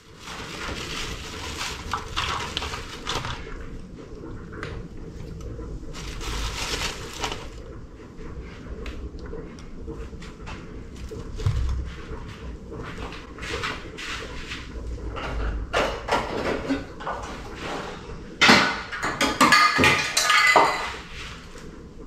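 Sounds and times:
dishes clattering with ringing: 18.4s - 21.0s
dishes clicking and rustling: 18.4s - 21.0s.

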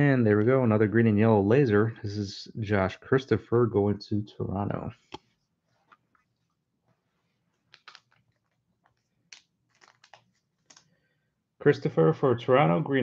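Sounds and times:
trading cards clicking and rustling: 7.6s - 10.9s.

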